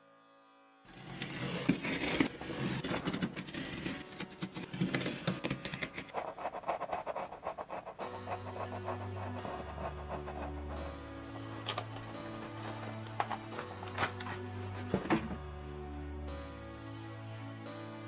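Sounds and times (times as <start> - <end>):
soft music with low notes: 0.0 - 18.0
pencil scratching on paper: 0.9 - 15.0.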